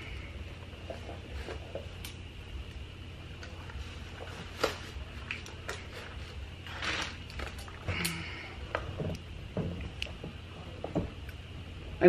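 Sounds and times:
steady low hum: 0.0s - 12.0s
packaging rustle: 3.7s - 7.9s.

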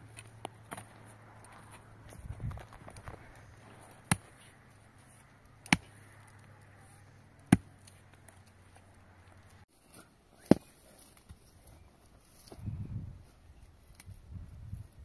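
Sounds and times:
sharp chopping strikes: 4.0s - 4.4s, 5.6s - 6.0s, 7.5s - 7.8s.

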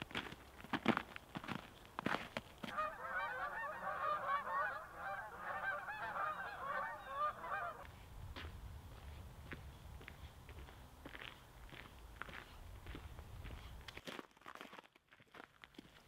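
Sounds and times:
footsteps on snow: 0.0s - 3.0s, 7.8s - 16.0s
geese honking: 2.6s - 7.9s.

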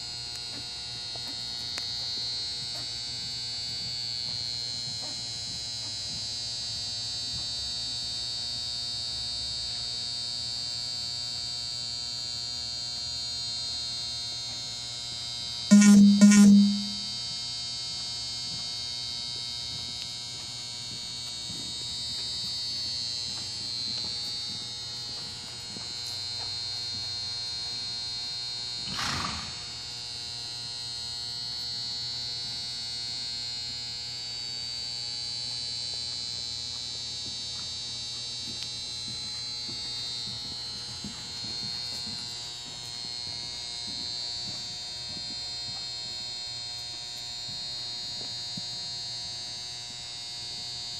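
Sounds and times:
brief loud noise: 15.7s - 17.1s
faint hum: 15.7s - 17.2s
high-pitched electrical buzz: 15.7s - 17.3s.

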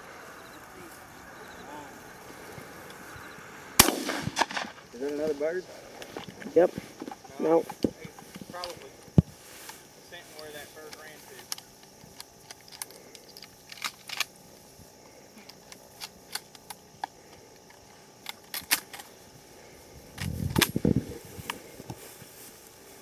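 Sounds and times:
rustling through tall grass: 0.0s - 18.2s, 18.8s - 23.0s.

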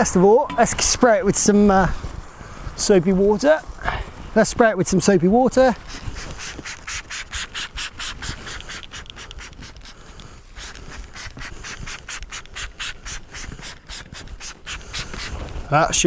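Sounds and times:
spray bottle hissing sprays: 5.8s - 15.7s.

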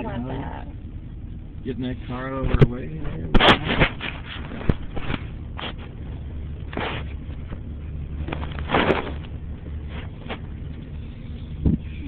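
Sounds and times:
car cabin rumble: 0.0s - 12.0s
brief rustles: 3.3s - 6.0s, 6.6s - 10.6s.

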